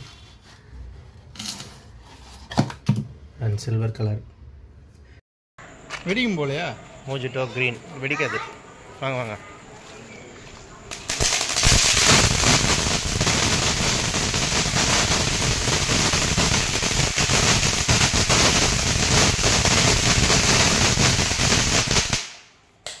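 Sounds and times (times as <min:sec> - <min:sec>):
firework fountain hissing and crackling: 0:10.9 - 0:22.5.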